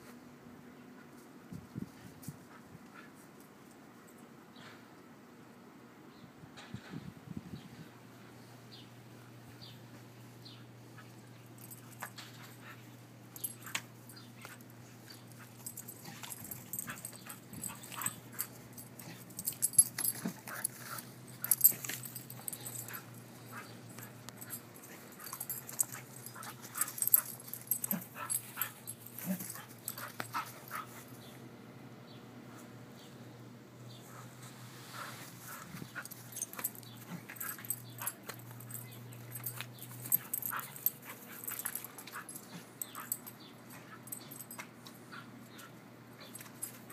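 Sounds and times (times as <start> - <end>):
dog play noises: 9.4 - 31.4, 33.9 - 46.9.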